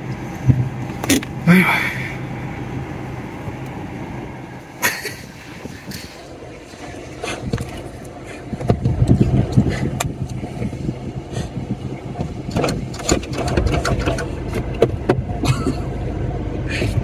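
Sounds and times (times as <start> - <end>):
diesel engine idling: 0.0 - 17.0
knocks and clatter: 8.5 - 10.4, 12.1 - 15.8.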